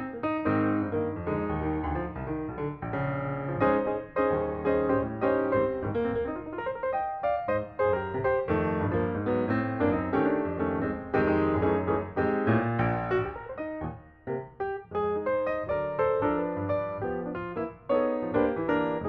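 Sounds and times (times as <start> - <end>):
piano music: 0.0 - 19.0.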